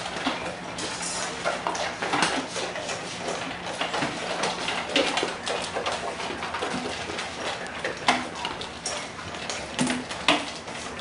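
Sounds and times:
dogs chewing: 0.0 - 11.0.

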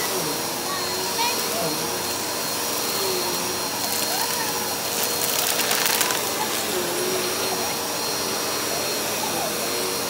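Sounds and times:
vacuum cleaner motor whine: 0.0 - 10.0
fast rattling clicks: 4.0 - 6.6.

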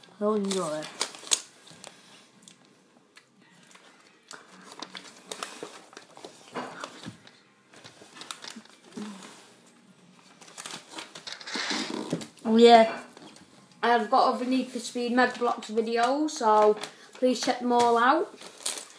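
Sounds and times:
plastic bags rustling: 0.2 - 2.2, 4.4 - 9.5, 10.2 - 13.3, 16.4 - 18.9.

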